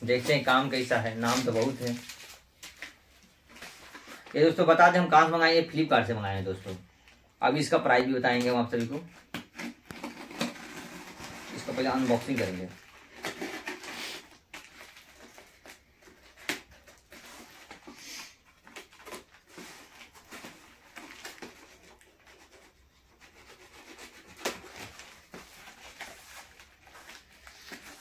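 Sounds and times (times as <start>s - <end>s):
knife scraping tape and cardboard: 9.3s - 11.8s, 16.4s - 19.7s, 21.0s - 25.9s.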